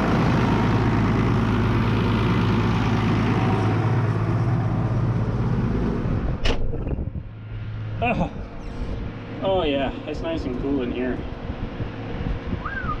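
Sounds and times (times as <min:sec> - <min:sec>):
tractor diesel engine running: 0:00.0 - 0:06.4.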